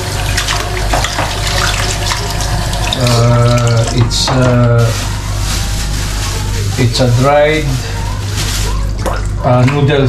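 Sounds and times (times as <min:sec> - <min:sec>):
tap water running into sink: 0:00.0 - 0:04.9
chicken being rinsed and handled: 0:00.0 - 0:10.0.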